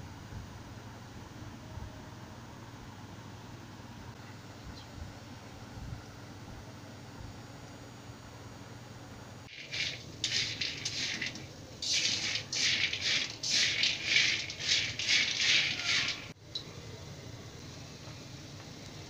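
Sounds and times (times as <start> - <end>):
peanuts rattling in a metal pan: 9.5 - 16.3.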